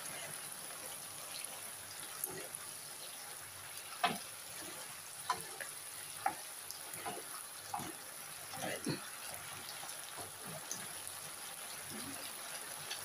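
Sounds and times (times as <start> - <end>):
spaghetti sizzling in a frying pan: 0.0 - 13.0.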